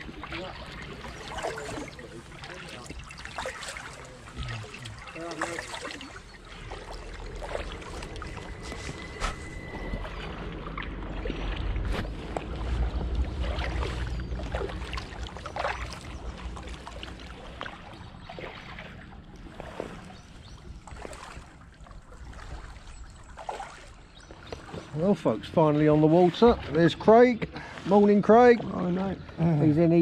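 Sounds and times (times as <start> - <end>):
low steady hum: 0.0 - 23.4
paddle splashing in water: 0.0 - 28.7.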